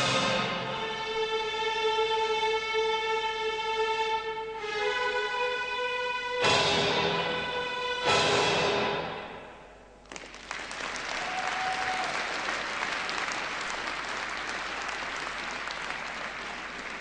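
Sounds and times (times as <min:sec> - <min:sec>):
audience applauding: 0:10.0 - 0:17.0.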